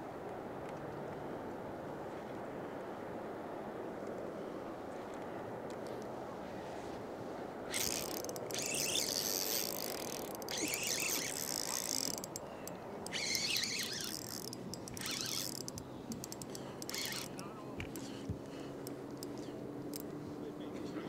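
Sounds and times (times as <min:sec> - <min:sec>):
river and wind rushing: 0:01.5 - 0:20.4
fishing reel whirring: 0:07.7 - 0:20.0.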